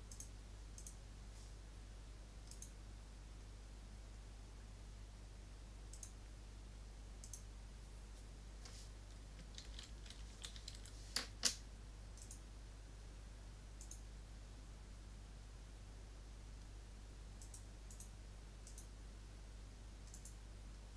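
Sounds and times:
computer mouse clicks: 0:00.1 - 0:01.0, 0:02.4 - 0:02.8, 0:05.9 - 0:06.2, 0:07.2 - 0:07.5, 0:09.1 - 0:11.6, 0:12.2 - 0:12.4, 0:13.8 - 0:14.1, 0:17.4 - 0:18.9, 0:20.0 - 0:20.4
keyboard typing: 0:09.1 - 0:11.6.

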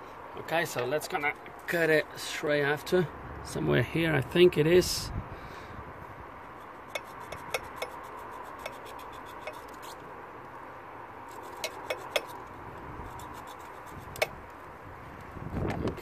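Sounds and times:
faint steady hum: 0:00.0 - 0:16.0
hand tools clicking and clinking: 0:11.4 - 0:12.4.

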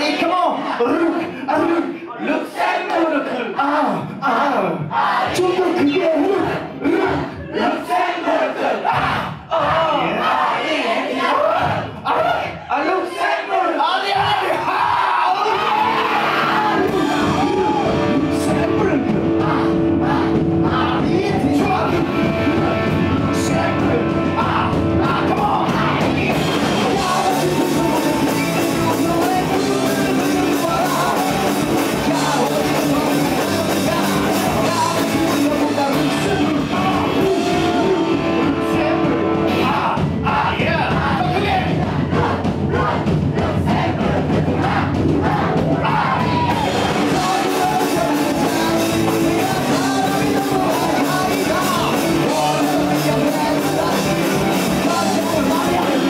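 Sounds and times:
sung and shouted vocals: 0:00.0 - 0:56.0
live punk rock band: 0:14.2 - 0:56.0.

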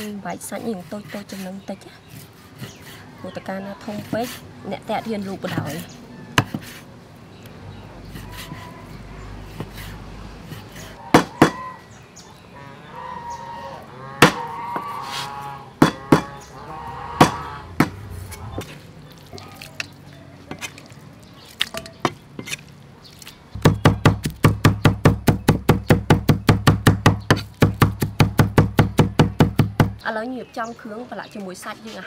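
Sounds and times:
cleaver chopping meat: 0:11.1 - 0:11.6, 0:23.6 - 0:30.0.

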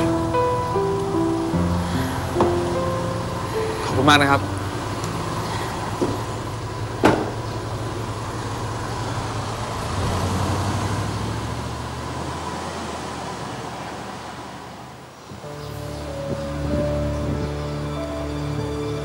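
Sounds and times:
pickup truck engine running: 0:00.0 - 0:14.9
car door shutting: 0:02.4 - 0:02.9, 0:04.9 - 0:07.9.

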